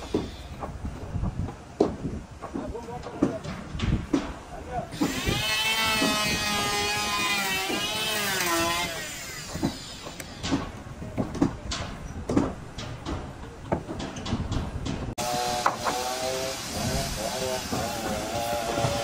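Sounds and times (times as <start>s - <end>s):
tool knocking on wood: 9.5s - 16.0s.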